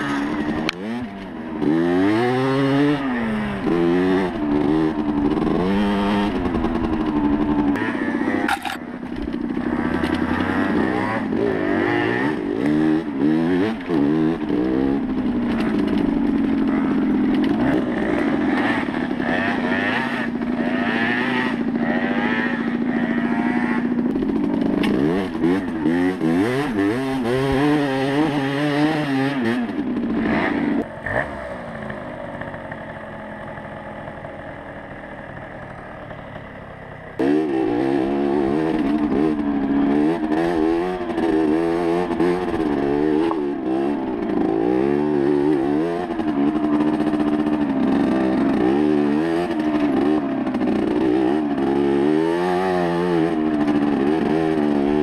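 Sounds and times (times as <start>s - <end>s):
moped engine revving: 0.0s - 55.0s
bike clatter: 8.5s - 9.3s.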